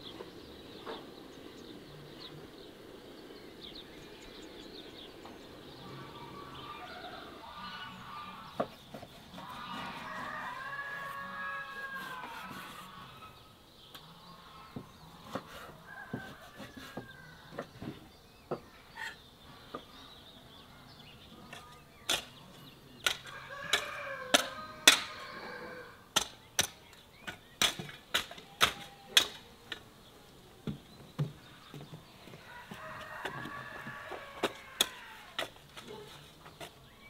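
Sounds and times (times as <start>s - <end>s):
chickens clucking: 4.5s - 20.2s
rooster crowing: 9.6s - 12.7s, 15.8s - 17.6s, 23.3s - 26.0s, 32.4s - 35.4s.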